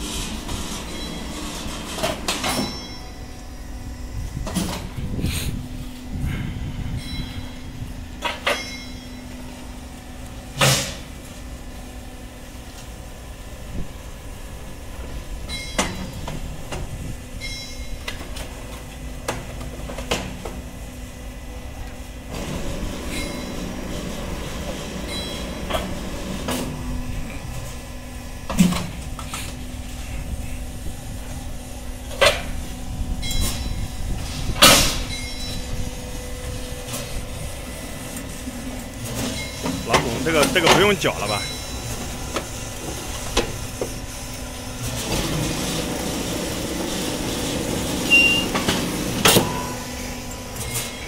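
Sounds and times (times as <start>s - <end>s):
steel pallets clanking: 0.0s - 3.3s, 8.2s - 9.4s, 22.3s - 26.8s, 36.8s - 44.0s, 44.8s - 51.0s
machine electric drive hum: 0.0s - 51.0s.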